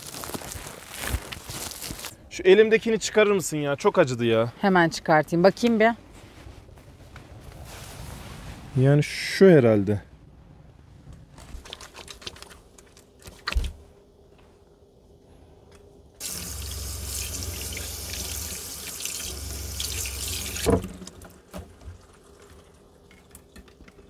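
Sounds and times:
tap water running: 0:16.2 - 0:24.0.

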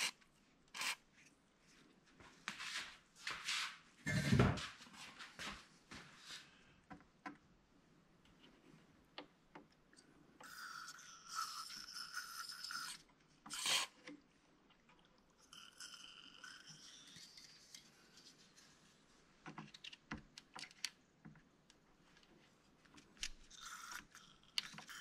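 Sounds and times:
tool scraping wire terminals: 0:00.0 - 0:01.0.

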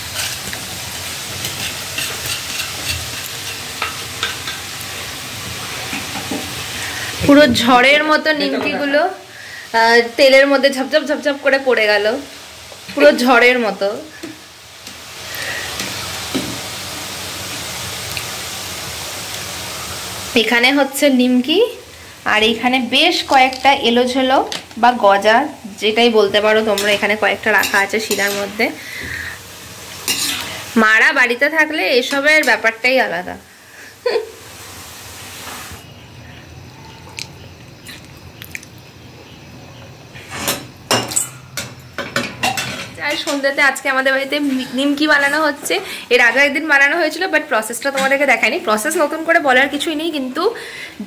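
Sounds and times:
dough deep-frying in oil: 0:00.0 - 0:50.9.

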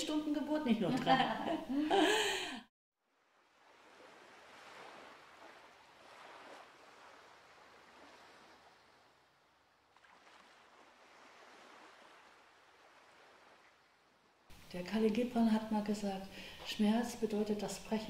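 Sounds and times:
small waves washing on beach: 0:03.1 - 0:14.7.

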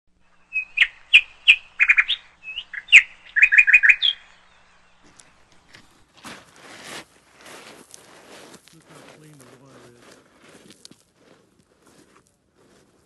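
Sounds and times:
songbird chirping: 0:00.1 - 0:06.2.

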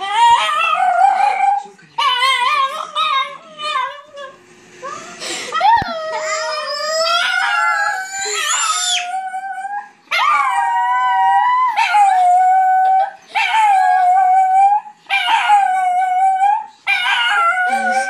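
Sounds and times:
dog howling: 0:00.0 - 0:04.4, 0:05.6 - 0:18.0
children howling: 0:05.6 - 0:13.0.

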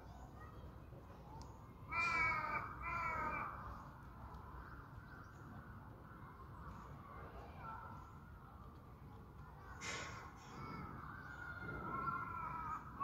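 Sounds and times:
crow cawing: 0:01.9 - 0:03.6, 0:11.9 - 0:13.0.

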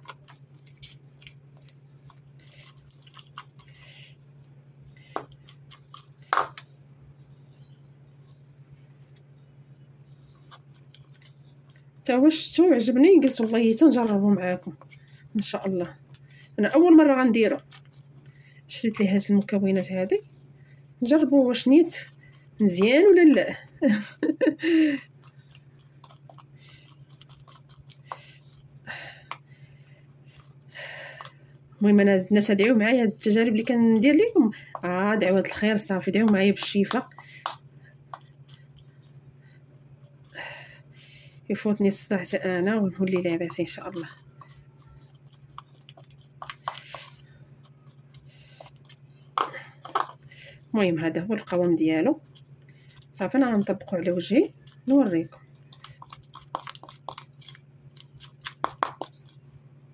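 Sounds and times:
steady low hum: 0:00.0 - 0:59.9
spoon stirring paste in bowl: 0:25.2 - 0:28.8, 0:32.4 - 0:38.9, 0:41.5 - 0:50.3, 0:51.0 - 0:59.6.

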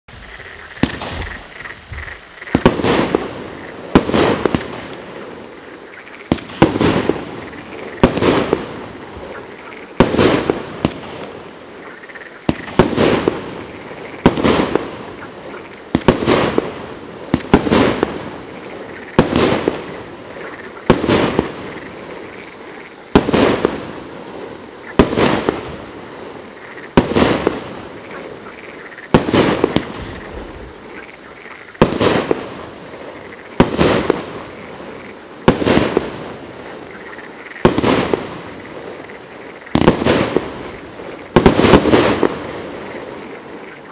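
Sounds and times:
firework shots banging: 0:00.8 - 0:01.5, 0:02.5 - 0:05.0, 0:06.3 - 0:09.4, 0:10.0 - 0:11.4, 0:12.4 - 0:15.1, 0:15.9 - 0:18.5, 0:19.1 - 0:22.0, 0:24.9 - 0:25.8, 0:26.9 - 0:28.2, 0:29.1 - 0:30.6, 0:31.8 - 0:32.6, 0:33.5 - 0:34.5, 0:35.4 - 0:36.4, 0:37.6 - 0:38.5, 0:39.7 - 0:40.7, 0:41.3 - 0:42.8.

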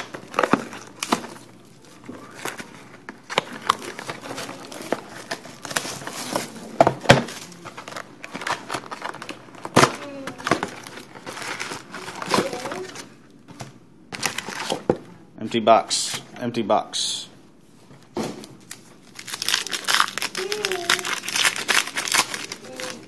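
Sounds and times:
packs being handled: 0:00.0 - 0:13.1, 0:18.5 - 0:23.0
plastic shrink wrap tearing: 0:00.0 - 0:13.1, 0:18.6 - 0:23.0.

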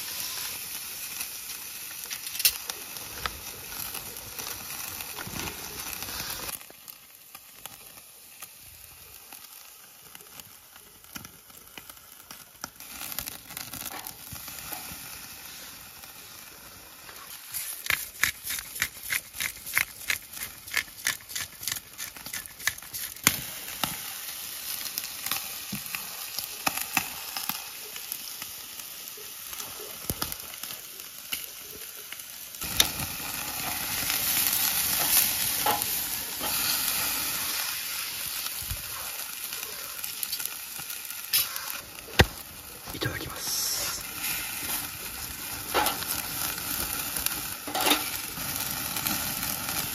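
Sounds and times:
steak sizzling on a grill: 0:00.0 - 0:49.9
sharp pops: 0:41.3 - 0:42.5.

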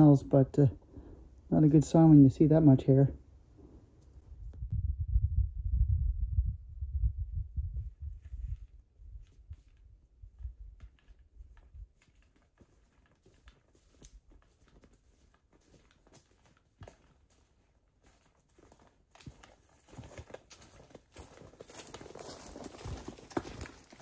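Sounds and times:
dry leaves and twigs crackling: 0:10.4 - 0:24.0
footsteps crunching through leaves: 0:11.0 - 0:24.0.

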